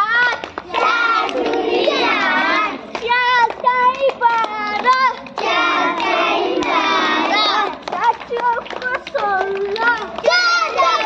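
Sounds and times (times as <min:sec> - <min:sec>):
child singing: 0:00.0 - 0:11.0
children singing together: 0:00.7 - 0:02.8, 0:04.8 - 0:07.8.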